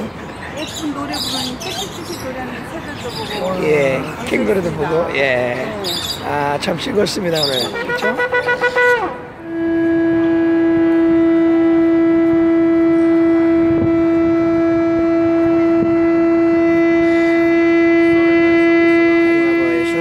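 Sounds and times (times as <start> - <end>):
shofar blast: 7.7 - 20.0.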